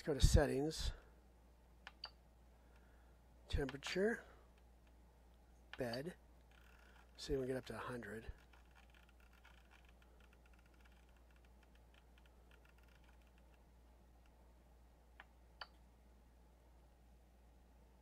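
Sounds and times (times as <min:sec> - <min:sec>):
rotary knob ticking: 0:05.7 - 0:07.7, 0:08.3 - 0:14.4.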